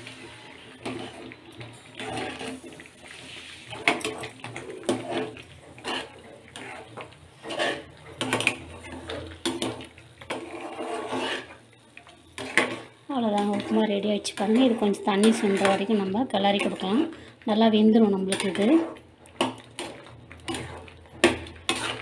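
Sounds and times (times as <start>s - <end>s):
metal ladle scraping a pan: 0.0s - 22.0s.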